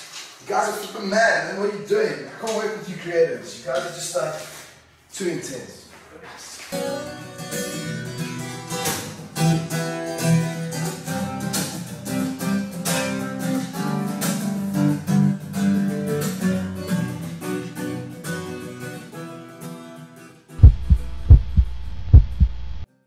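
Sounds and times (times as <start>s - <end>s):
acoustic guitar strummed and plucked: 6.7s - 20.5s.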